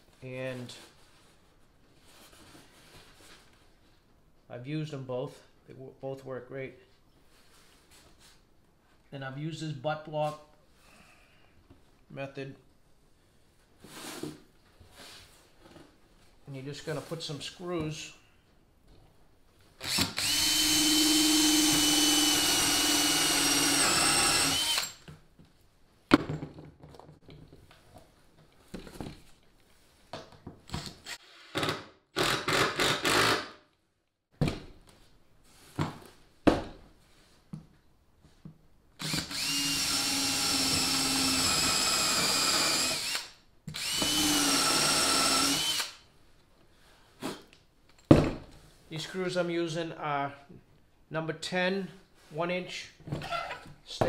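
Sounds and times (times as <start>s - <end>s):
cordless drill driving screws: 19.8s - 25.1s, 30.8s - 33.5s, 39.0s - 46.0s.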